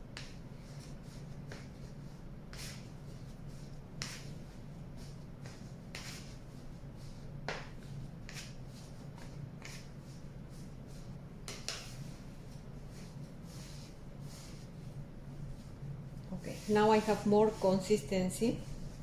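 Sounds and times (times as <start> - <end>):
dough squelching and slapping on metal: 0.0 - 19.0
faint steady hum: 0.0 - 19.0
dough smacking: 11.4 - 12.0.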